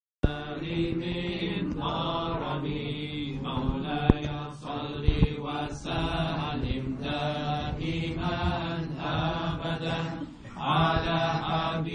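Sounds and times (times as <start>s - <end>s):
men chanting unaccompanied: 0.2s - 11.9s.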